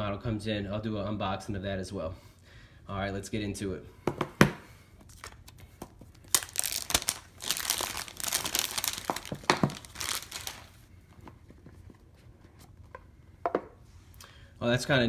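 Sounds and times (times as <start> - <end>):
plastic wrap crinkling and tearing: 5.1 - 10.9.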